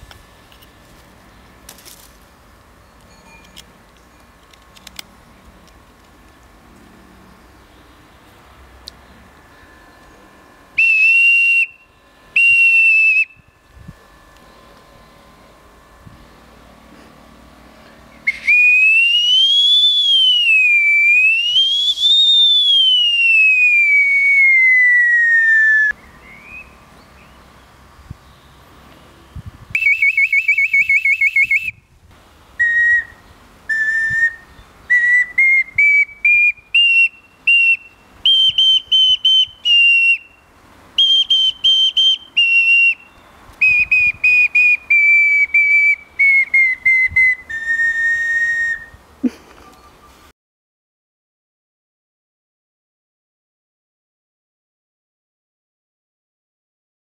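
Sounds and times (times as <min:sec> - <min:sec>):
bark whistle blown: 0:10.8 - 0:13.4, 0:18.3 - 0:26.7, 0:29.8 - 0:31.8, 0:32.6 - 0:40.4, 0:41.0 - 0:49.0.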